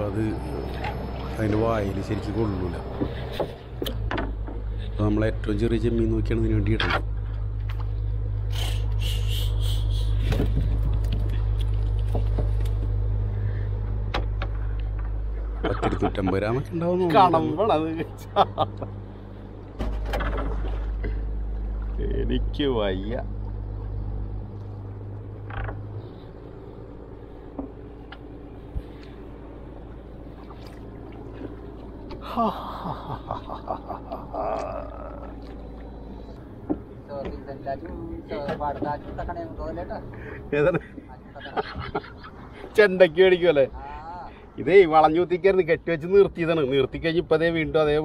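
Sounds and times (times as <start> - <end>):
diesel boat engine drone: 0.0 - 48.0
water splash: 30.4 - 32.0.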